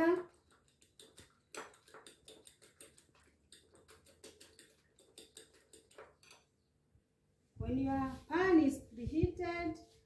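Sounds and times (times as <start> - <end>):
cutlery clicking on ceramic bowl: 0.4 - 6.5.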